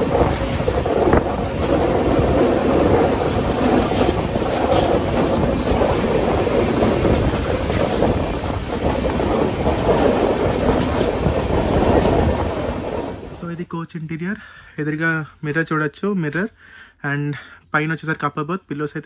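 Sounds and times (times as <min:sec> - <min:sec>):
wheels clattering over rail joints: 0:00.0 - 0:13.4
train coaches rumbling: 0:00.0 - 0:16.6.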